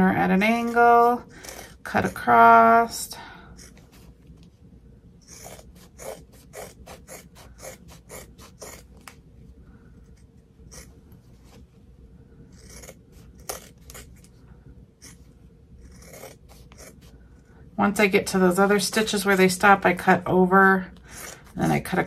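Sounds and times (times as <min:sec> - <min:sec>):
scissors snipping fabric: 0:05.2 - 0:09.2, 0:12.5 - 0:14.3.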